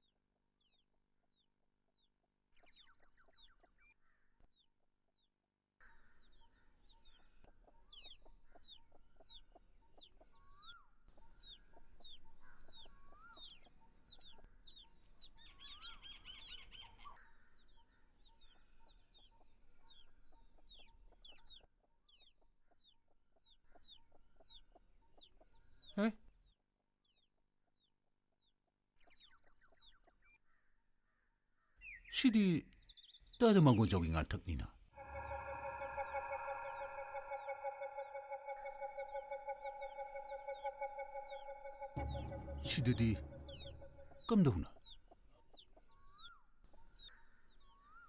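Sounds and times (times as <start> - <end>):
faint bird chirps: 5.8 - 48.0
rising bird call note: 35.0 - 44.7.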